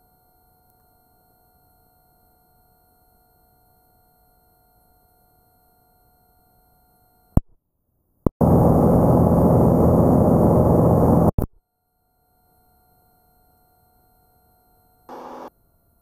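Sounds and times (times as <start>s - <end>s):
low engine drone: 8.4s - 11.4s.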